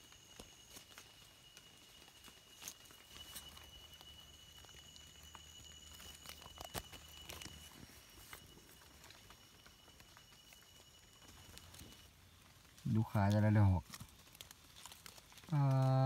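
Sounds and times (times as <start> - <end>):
faint steady high tone: 0.0 - 16.0
hands rustling dry leaves: 0.0 - 16.0.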